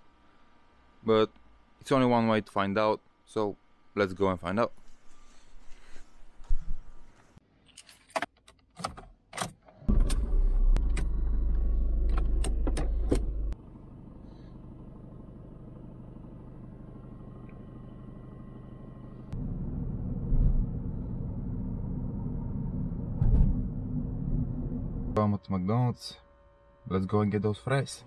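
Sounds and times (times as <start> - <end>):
car engine starting and idling: 9.6 - 25.4.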